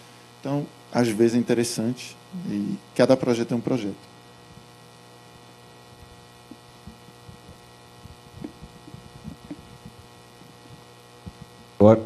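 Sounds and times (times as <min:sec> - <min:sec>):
low electrical hum: 0:00.0 - 0:12.0
faint knocks and thumps: 0:06.0 - 0:11.6.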